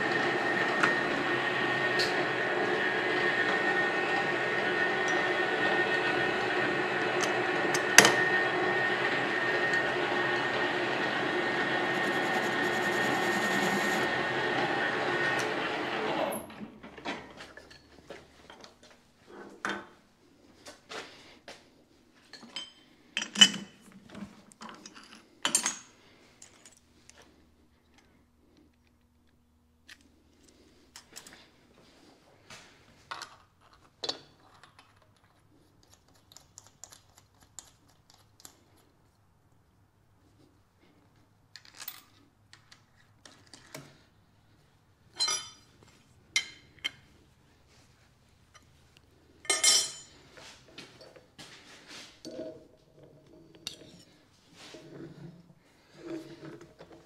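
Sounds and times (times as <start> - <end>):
metal tools clinking: 45.1 - 45.8, 49.4 - 50.2.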